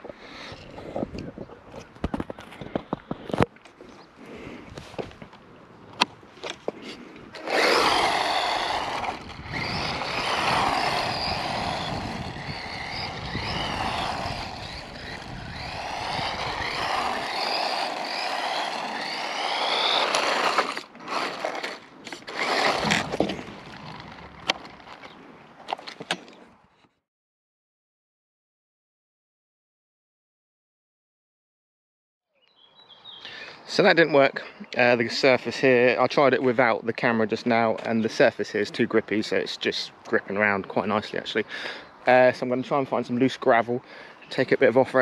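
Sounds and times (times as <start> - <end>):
tyre noise on asphalt: 0.0 - 26.8
rc car motor whine: 7.3 - 25.1.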